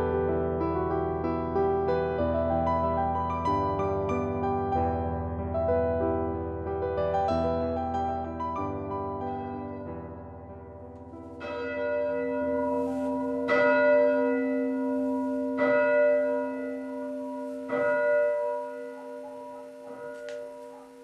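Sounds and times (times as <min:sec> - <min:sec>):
church bell tolling: 0:07.4 - 0:21.0.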